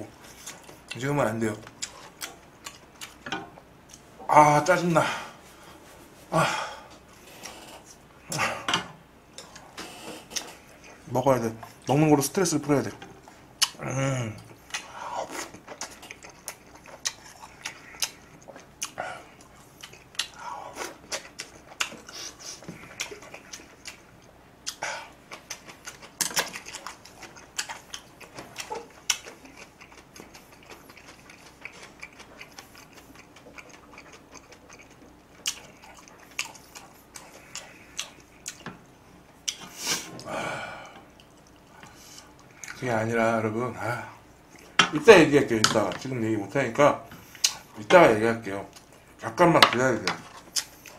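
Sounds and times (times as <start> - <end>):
chewing and lip smacking: 1.6 - 3.2, 14.4 - 38.8, 41.0 - 42.8, 47.2 - 47.8, 50.2 - 50.9.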